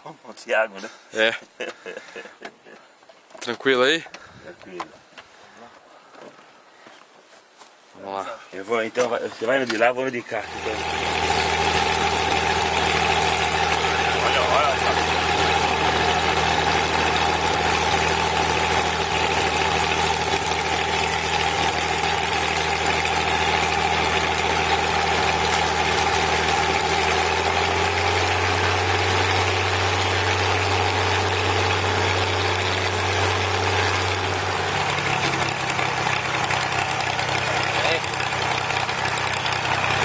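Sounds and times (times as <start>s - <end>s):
propeller plane engine drone: 10.4s - 40.0s.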